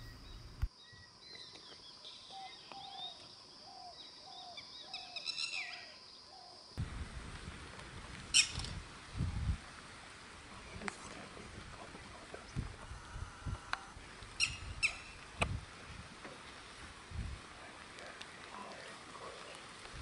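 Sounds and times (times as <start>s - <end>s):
low rumbling: 0.0s - 0.7s
higher chirping bird calls: 0.0s - 6.6s, 8.3s - 8.6s, 14.4s - 15.2s.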